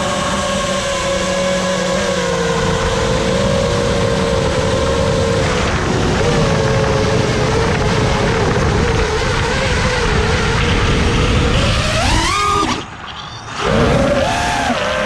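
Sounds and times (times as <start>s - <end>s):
quadcopter propellers whining: 0.0s - 15.0s
rushing noise: 4.7s - 15.0s.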